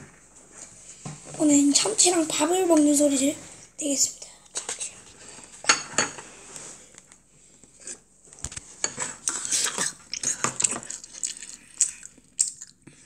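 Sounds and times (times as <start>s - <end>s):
close-up eating sounds: 8.8s - 13.0s.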